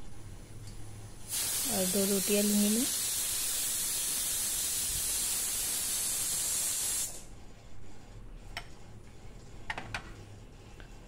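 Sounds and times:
steady hiss: 1.2 - 7.3.

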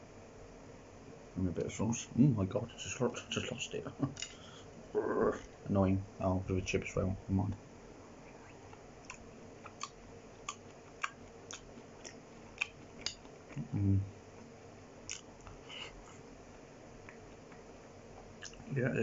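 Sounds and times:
low hum from person eating: 0.0 - 19.0
close chewing mouth clicks: 8.4 - 13.6, 15.0 - 16.2, 18.4 - 18.7.

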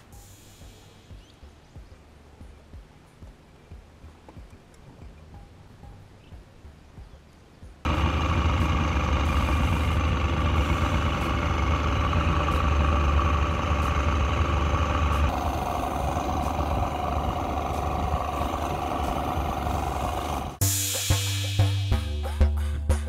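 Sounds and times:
outboard motor running: 7.9 - 20.6.

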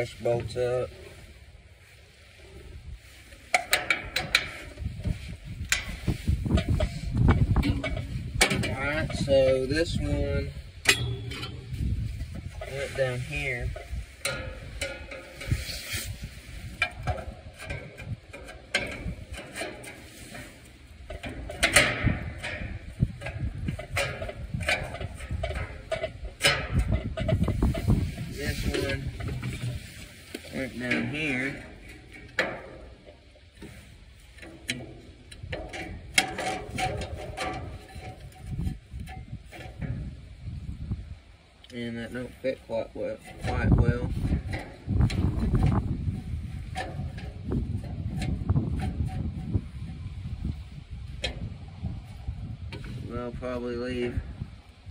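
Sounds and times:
wind rumbling on microphone: 0.0 - 54.9
metal parts clicking and scraping: 3.3 - 40.1.

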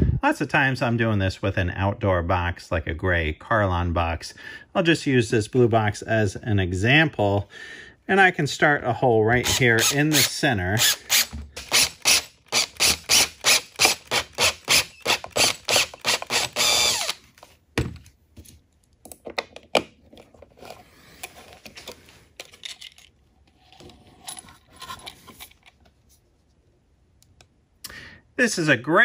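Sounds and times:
cordless drill cutting plastic: 9.4 - 17.2
clicks and handling noise: 17.3 - 27.6.

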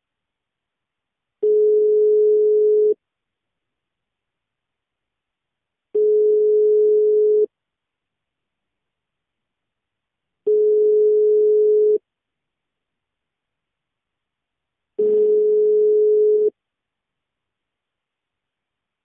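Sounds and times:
telephone ringback tone: 1.4 - 3.0, 6.0 - 7.5, 10.5 - 12.0, 15.0 - 16.5.

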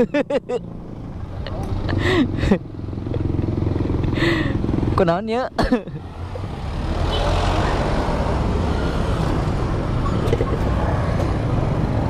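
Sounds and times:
vehicle engine running: 0.0 - 6.8.

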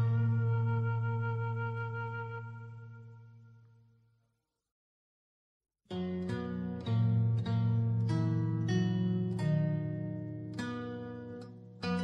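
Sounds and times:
plucked string melody: 0.0 - 3.2, 5.9 - 12.0.

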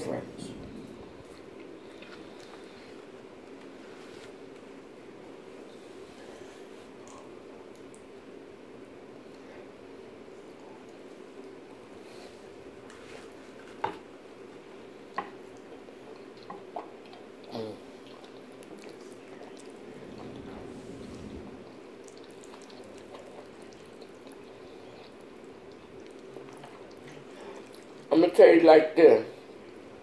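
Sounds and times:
electric fan humming: 0.0 - 16.4, 17.3 - 30.0
wet chewing: 1.3 - 3.7, 15.5 - 28.1.

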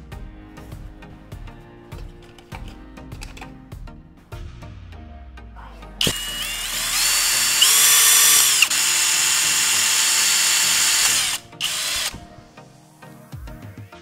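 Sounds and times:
cordless drill whining: 6.0 - 12.4.

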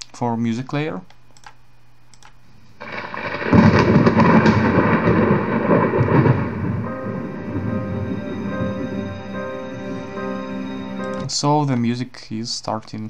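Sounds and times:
thunder rumbling: 2.8 - 11.1.

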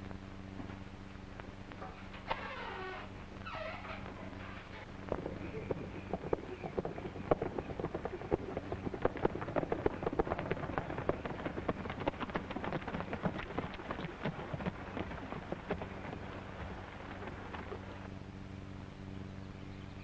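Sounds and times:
low soundtrack hum: 0.0 - 20.0
hoofbeats on dirt: 3.8 - 18.1.

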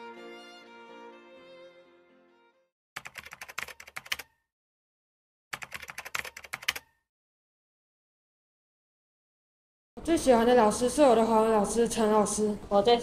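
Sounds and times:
violin music: 0.0 - 2.7
rapid keyboard typing clicks: 3.0 - 4.3, 5.5 - 6.9.

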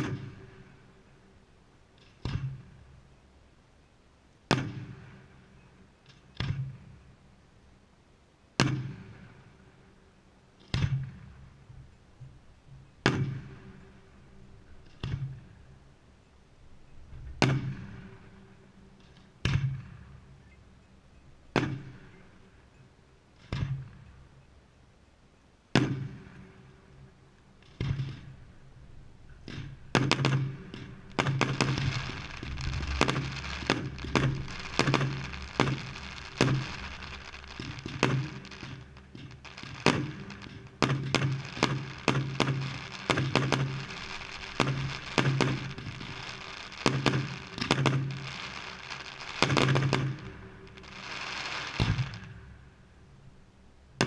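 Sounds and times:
firework bangs echoing: 17.2 - 18.5, 21.5 - 22.3, 29.4 - 52.4
firework crackling: 27.7 - 52.8.

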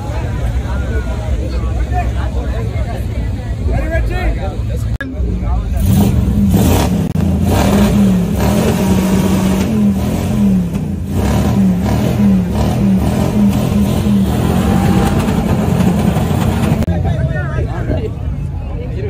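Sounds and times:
car engine revving hard: 5.8 - 16.9.

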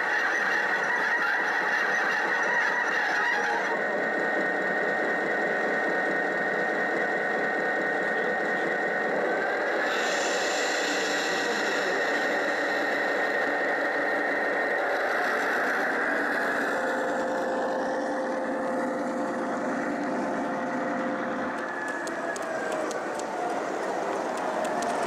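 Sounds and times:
model train hum: 0.0 - 25.0
sharp clicks: 21.5 - 25.0.

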